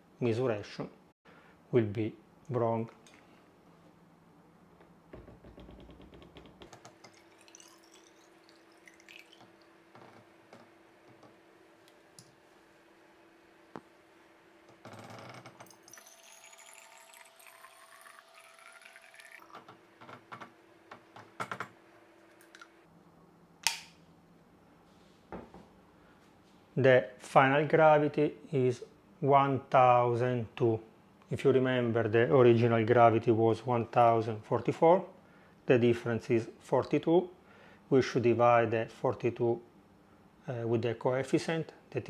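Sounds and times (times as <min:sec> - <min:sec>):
liquid pouring into a jar: 0:06.8 - 0:09.7, 0:15.7 - 0:19.5.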